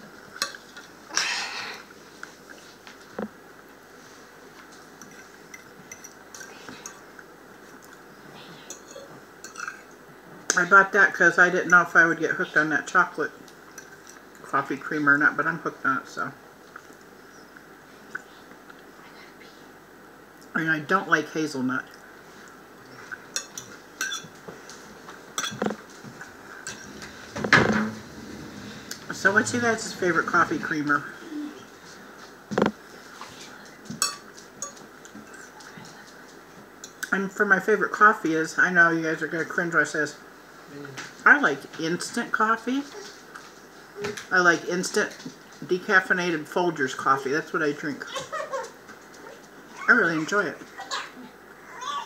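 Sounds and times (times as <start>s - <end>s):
quiet chewing: 4.5s - 9.2s, 16.6s - 19.6s
fork clinking on plate: 23.3s - 24.3s, 25.4s - 25.8s, 34.0s - 35.4s.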